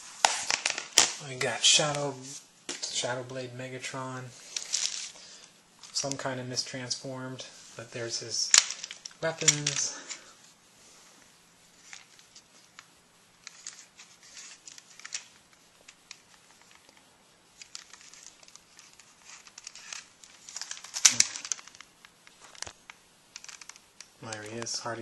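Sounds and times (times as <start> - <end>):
plastic parts clattering: 0.3 - 1.2, 4.5 - 5.2, 8.4 - 10.3, 11.8 - 17.0, 17.6 - 22.8, 23.4 - 25.0
plastic toy clicks and rustles: 11.8 - 17.0, 17.6 - 21.9, 22.6 - 24.7.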